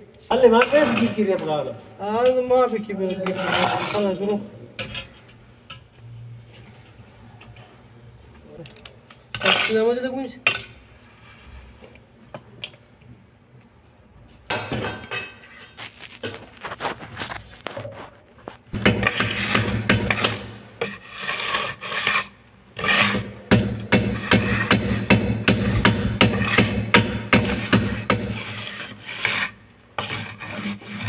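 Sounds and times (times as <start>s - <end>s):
trowel scraping and tapping mortar: 14.5s - 31.0s.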